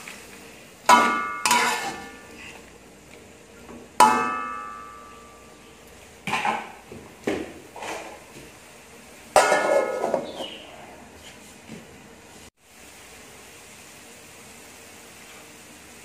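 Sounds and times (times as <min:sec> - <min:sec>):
metal lid clanging onto wok: 0:00.9 - 0:02.2, 0:04.0 - 0:05.5, 0:09.4 - 0:10.3
metal spatula clanging on wok: 0:00.9 - 0:02.3, 0:04.0 - 0:05.6, 0:09.4 - 0:10.1
spatula scraping wok: 0:00.9 - 0:02.7, 0:07.7 - 0:08.3.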